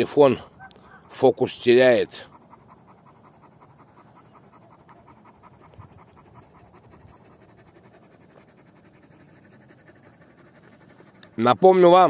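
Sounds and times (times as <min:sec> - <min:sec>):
large dog panting: 0:00.0 - 0:12.0.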